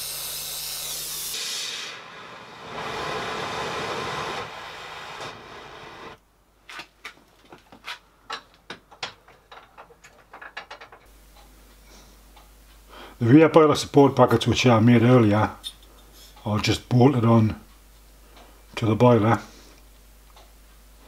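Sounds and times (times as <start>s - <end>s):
torch hissing: 0.0s - 6.2s.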